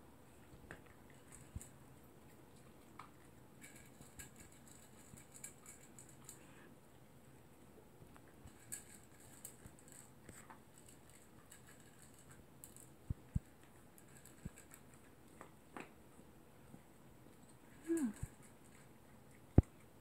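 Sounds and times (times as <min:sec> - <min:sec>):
dog crunching kibble: 0:00.7 - 0:06.4, 0:08.2 - 0:16.0.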